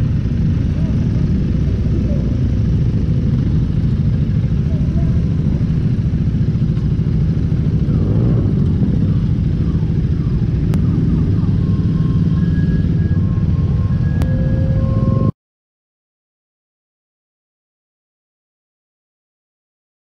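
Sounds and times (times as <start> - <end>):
motorcycle engine idling: 0.0 - 15.2.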